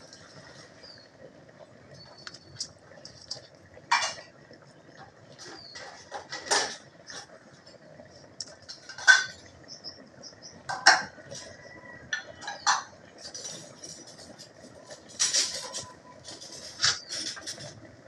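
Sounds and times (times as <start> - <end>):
food clinking against pan: 12.1 - 14.1.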